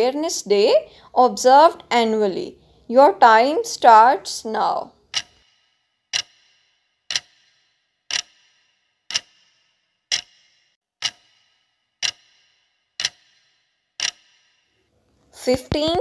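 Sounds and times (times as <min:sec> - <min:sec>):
clock ticks with high ring: 0:05.0 - 0:14.8.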